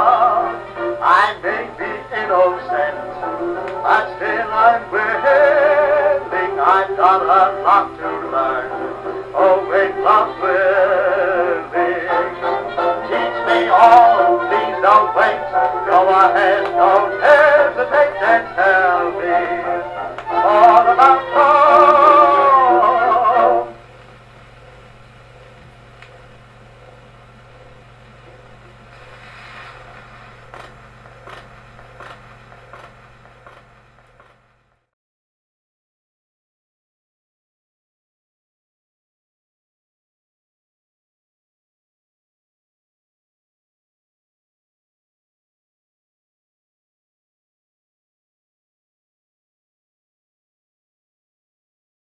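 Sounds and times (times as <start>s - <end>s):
gramophone record music: 0.0s - 34.9s
stylus clicking in run-out groove: 15.4s - 17.5s, 30.5s - 34.5s.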